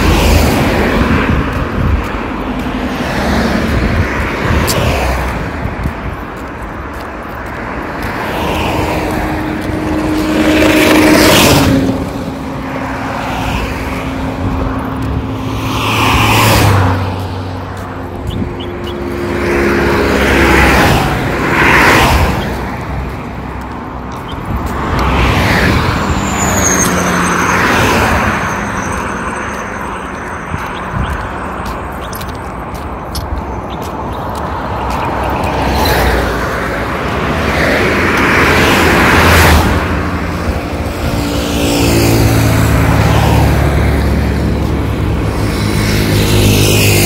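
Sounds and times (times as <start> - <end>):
cars passing: 0.0 - 47.0.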